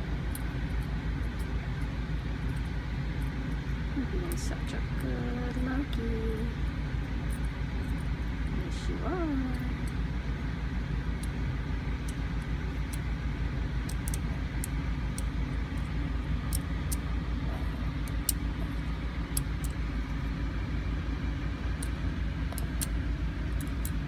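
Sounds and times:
low machine rumble: 0:00.0 - 0:24.0.

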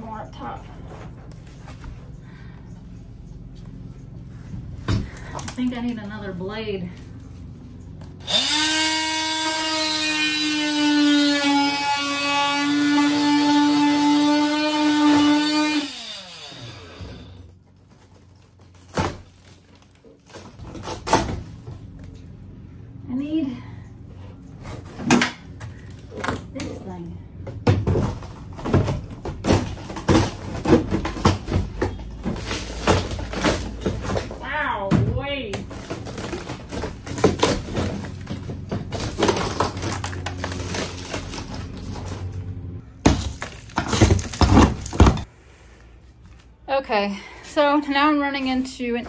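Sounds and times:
multi-tool motor whining: 0:08.1 - 0:17.6.

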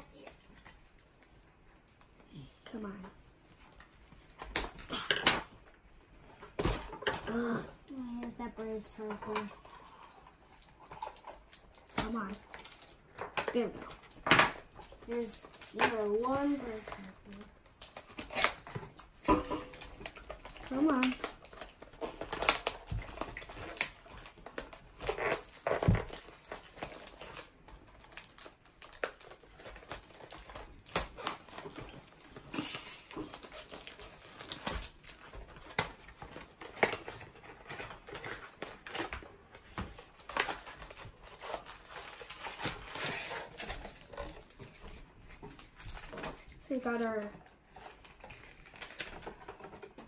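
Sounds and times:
plastic wrapping crinkling: 0:02.8 - 0:50.0
cardboard tearing: 0:13.5 - 0:50.0.

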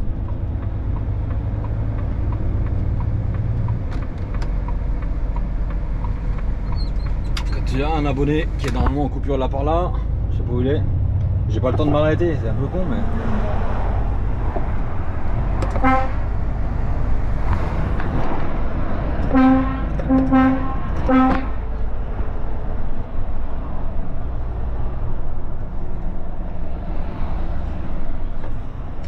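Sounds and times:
truck engine and road drone: 0:00.0 - 0:29.0
truck horn toots: 0:15.7 - 0:16.3, 0:19.3 - 0:21.6.

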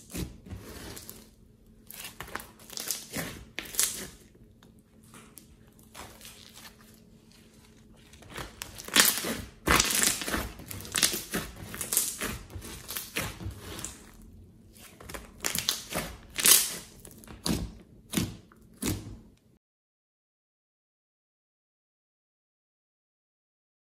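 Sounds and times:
slime squelching and crackling: 0:00.0 - 0:19.4.

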